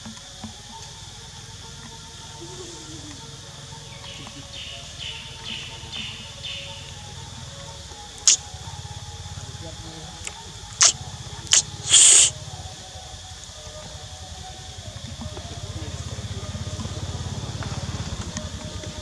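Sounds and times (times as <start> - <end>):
hissing bursts: 6.2 - 9.2, 10.1 - 15.3.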